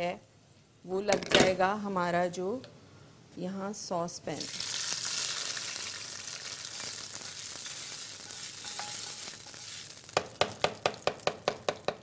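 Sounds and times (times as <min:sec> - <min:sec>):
hot oil hissing and sizzling: 0:04.4 - 0:10.4.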